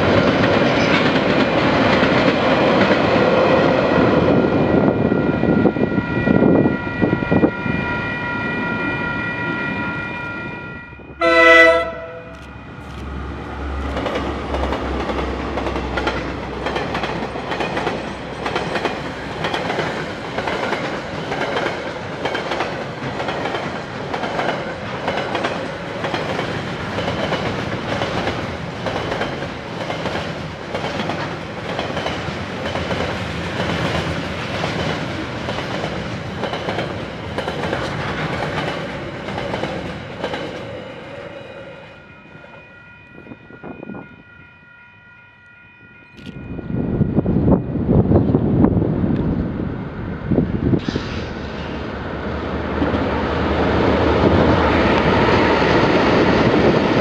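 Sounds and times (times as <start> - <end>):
train passing with high whine: 0.0 - 57.0
train horn blast: 9.7 - 12.5
train wheels clicking over rail joints: 12.3 - 41.2.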